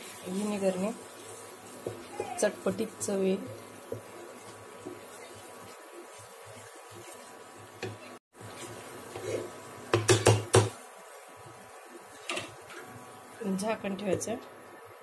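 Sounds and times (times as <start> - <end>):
stirring in pan: 0.0 - 14.4
spoon tapping frying pan: 9.9 - 10.8.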